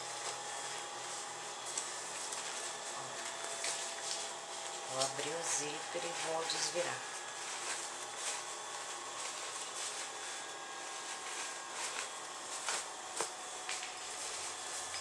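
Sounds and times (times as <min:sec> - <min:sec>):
fabric rustling and rubbing: 0:06.0 - 0:15.0.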